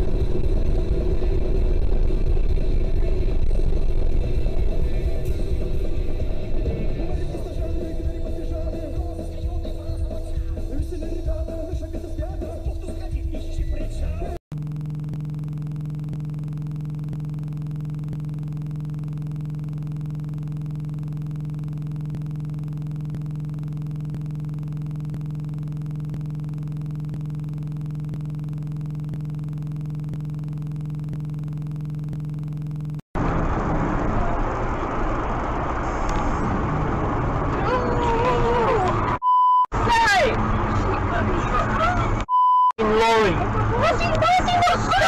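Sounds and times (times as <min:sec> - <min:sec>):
road and engine noise: 0:00.0 - 0:13.1, 0:33.2 - 0:45.0
steady low hum: 0:14.5 - 0:37.5.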